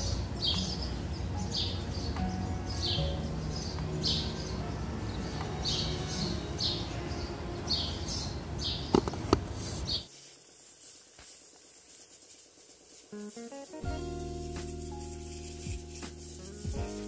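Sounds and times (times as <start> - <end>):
bird chirping: 0.0 - 10.7
workshop background noise: 0.0 - 13.6.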